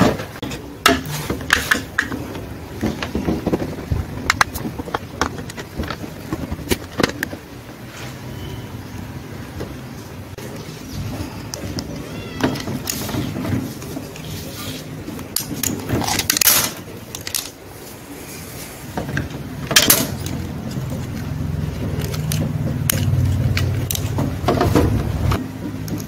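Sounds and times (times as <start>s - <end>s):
plastic parts clicking and knocking: 0.0s - 7.6s, 11.0s - 14.4s, 15.0s - 17.7s, 18.9s - 26.0s.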